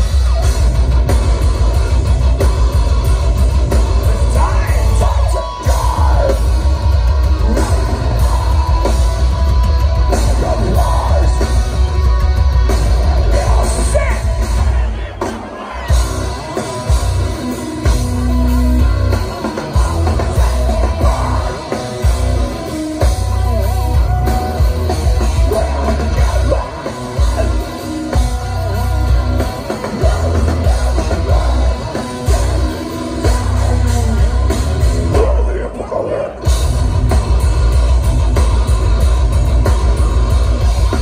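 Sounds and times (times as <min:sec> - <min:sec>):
heavy kick drum and bass: 0:00.0 - 0:15.2, 0:15.9 - 0:35.5, 0:36.4 - 0:41.0
distorted electric guitars: 0:00.0 - 0:41.0
person singing: 0:04.2 - 0:12.1, 0:19.5 - 0:22.4, 0:23.7 - 0:36.5.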